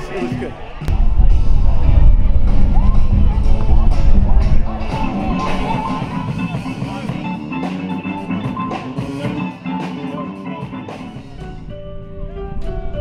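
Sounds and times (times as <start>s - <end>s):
rock band playing live: 2.6s - 12.1s.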